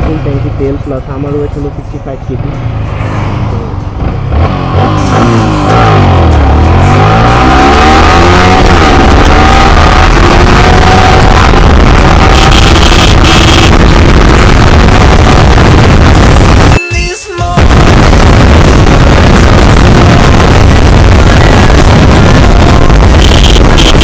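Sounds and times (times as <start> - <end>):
motorcycle engine revving: 0.0 - 16.8, 17.6 - 24.0
wind rush on microphone: 4.4 - 16.8, 17.6 - 24.0.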